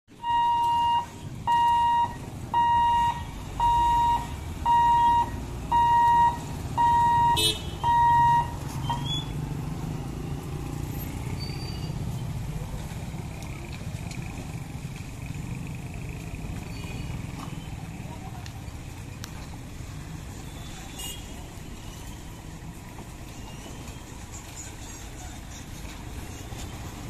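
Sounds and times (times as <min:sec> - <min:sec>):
road traffic: 0:00.0 - 0:27.0
warning buzzer beeping: 0:00.2 - 0:08.6.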